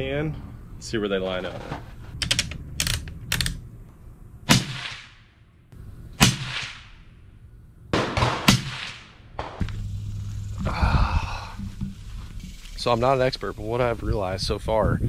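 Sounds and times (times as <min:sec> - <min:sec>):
suppressed rifle shots: 0:04.5 - 0:05.3, 0:06.2 - 0:07.0, 0:07.9 - 0:09.8.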